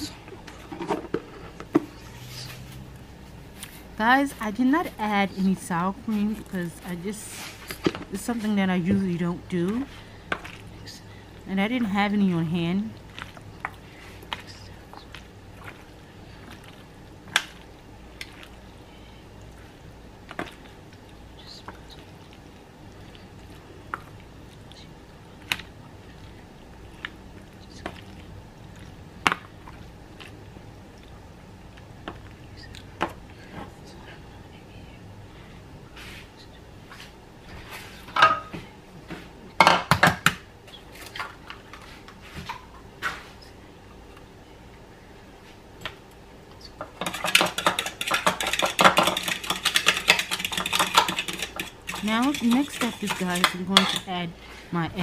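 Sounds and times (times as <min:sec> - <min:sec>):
faint low hum: 0:00.0 - 0:55.0
dishes clinking and knocking: 0:38.1 - 0:38.6, 0:39.6 - 0:40.4, 0:46.8 - 0:54.1
spoon stirring soft food: 0:46.7 - 0:54.2
spoon tapping foil pan: 0:47.0 - 0:54.1.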